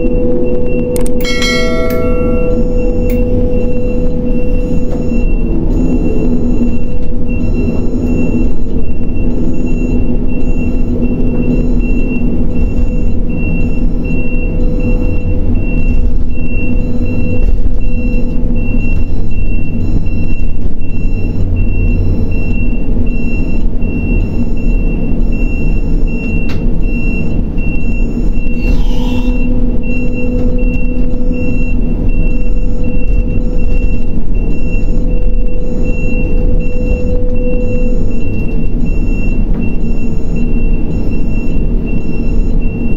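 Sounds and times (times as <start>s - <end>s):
high warning beeper: 0.0s - 26.3s
crane engine droning: 0.0s - 42.9s.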